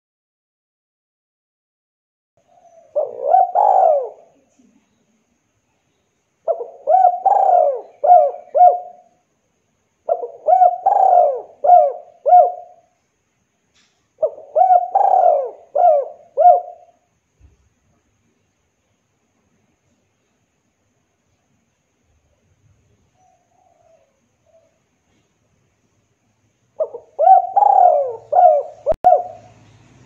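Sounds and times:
dove cooing: 0:02.5 - 0:04.7, 0:06.4 - 0:09.1, 0:10.0 - 0:12.9, 0:14.2 - 0:17.0, 0:23.2 - 0:24.8, 0:26.8 - 0:29.6.

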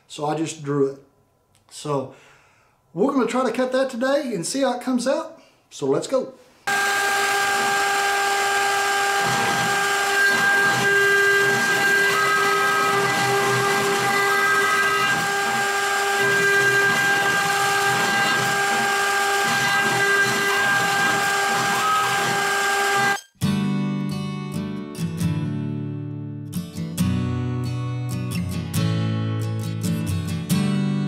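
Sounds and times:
bit cutting into wood: 0:06.7 - 0:23.2
router spindle whine: 0:06.7 - 0:23.2.

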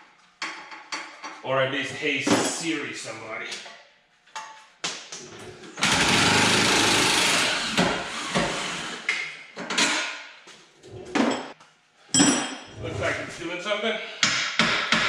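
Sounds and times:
tools and metal clanking: 0:00.3 - 0:01.4, 0:09.6 - 0:10.2, 0:10.9 - 0:13.3.

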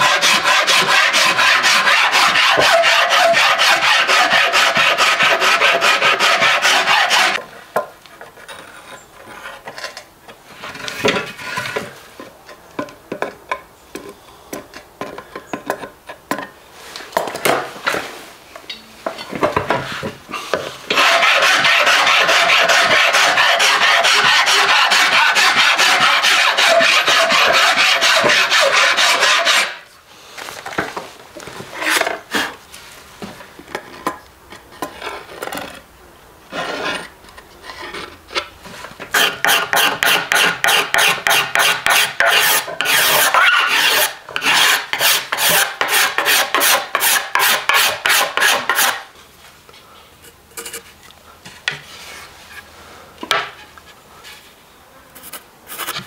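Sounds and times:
hand rasp shaving wood: 0:00.0 - 0:07.4, 0:20.9 - 0:29.8, 0:39.1 - 0:49.0.

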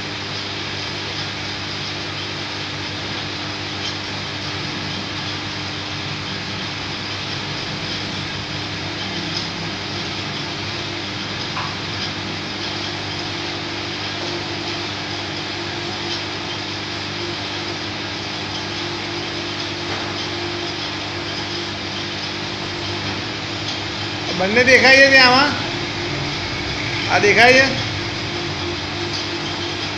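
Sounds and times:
low electrical hum: 0:00.0 - 0:29.9
even rushing noise: 0:24.3 - 0:29.0.

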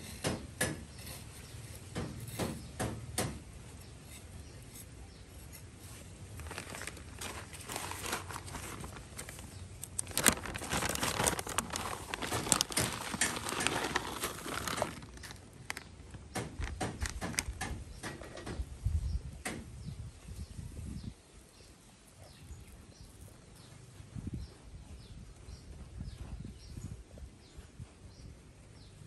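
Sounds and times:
granules ticking onto soil: 0:00.2 - 0:18.5
plastic bag crinkling: 0:05.9 - 0:17.7.

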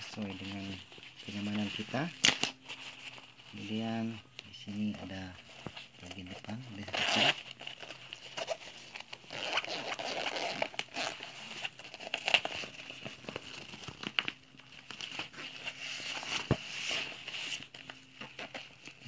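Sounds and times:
backpack fabric rustling: 0:00.0 - 0:04.2, 0:04.8 - 0:19.0.

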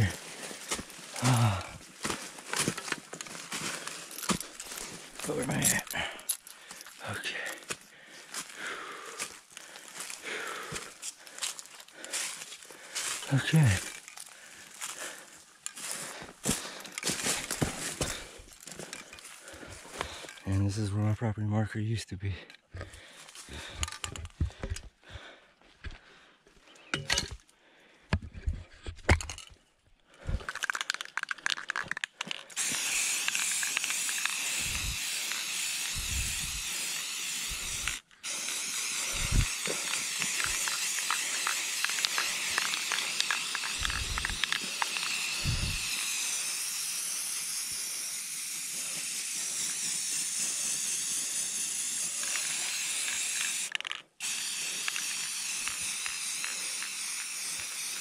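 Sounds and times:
spray-paint can hissing: 0:32.6 - 0:58.0.

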